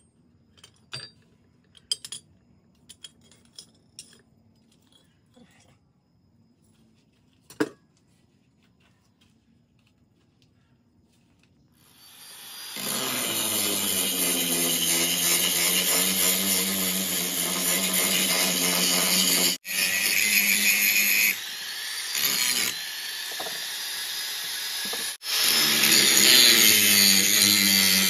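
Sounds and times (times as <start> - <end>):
angle grinder grinding steel: 11.8 - 28.0.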